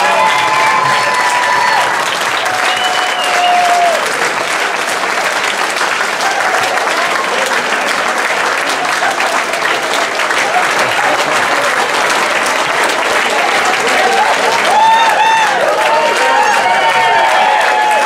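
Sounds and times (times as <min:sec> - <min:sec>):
crowd applauding: 0:00.0 - 0:18.0
long cheer: 0:00.0 - 0:18.0.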